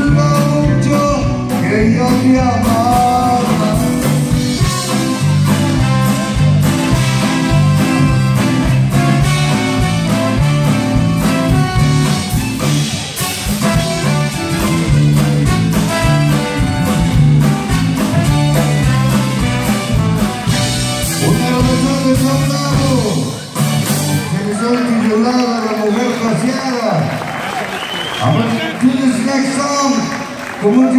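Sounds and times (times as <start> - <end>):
man's voice: 0.0 - 4.4, 21.0 - 23.5, 24.2 - 27.2, 28.2 - 30.9
man singing: 0.0 - 4.8, 21.0 - 23.4
live blues-rock band playing: 0.0 - 25.2.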